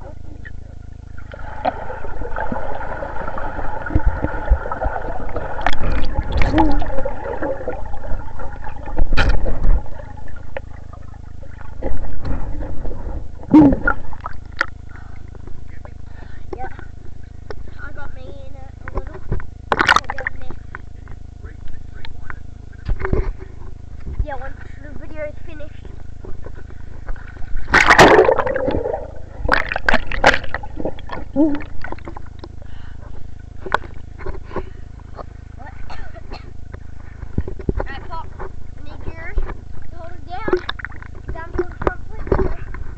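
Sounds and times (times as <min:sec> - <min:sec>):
low rumble: 0:00.0 - 0:16.2
water sloshing and bubbling: 0:00.0 - 0:22.4, 0:23.0 - 0:42.9
water splashing: 0:01.1 - 0:15.3, 0:19.7 - 0:20.4, 0:27.2 - 0:32.5, 0:39.8 - 0:42.6.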